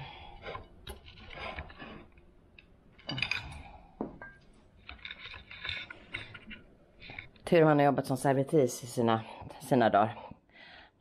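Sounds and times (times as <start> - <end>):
tableware knocks and clinks: 3.0 - 4.5.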